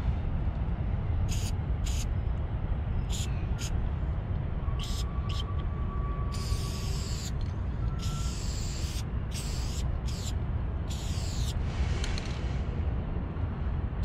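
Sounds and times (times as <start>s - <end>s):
steady low rumble: 0.0s - 14.0s
spray paint can hissing: 1.3s - 2.0s, 3.1s - 3.7s, 4.8s - 5.4s, 6.3s - 7.4s, 8.0s - 10.3s, 10.9s - 11.6s.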